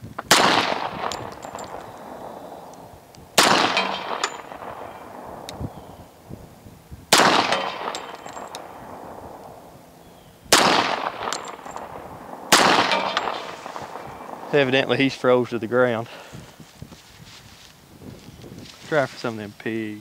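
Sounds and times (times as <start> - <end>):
pistol shots echoing: 0.3 - 5.8, 7.1 - 15.0
metallic ringing of steel targets: 0.7 - 2.8, 3.4 - 5.7, 7.2 - 14.9.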